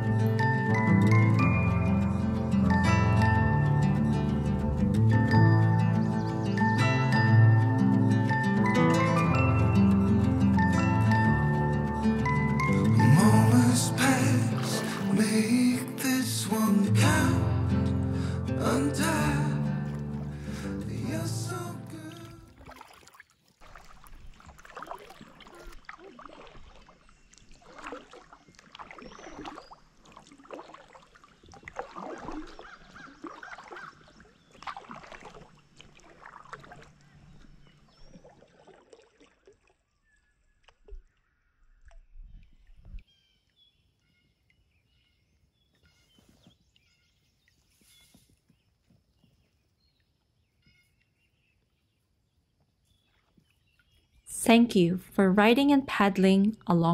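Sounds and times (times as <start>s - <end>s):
water lapping: 11.9s - 43.1s
paddle splashing in water: 12.9s - 15.8s, 21.4s - 43.1s.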